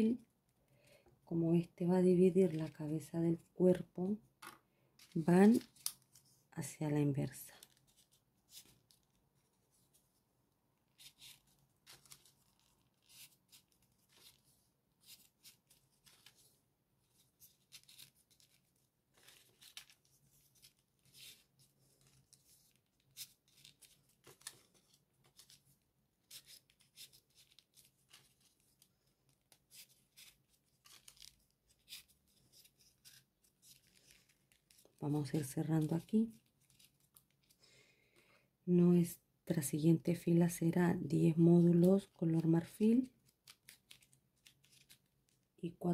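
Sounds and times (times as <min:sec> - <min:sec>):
paper rustling and scraping: 0:10.9 - 0:37.6, 0:43.2 - 0:45.5.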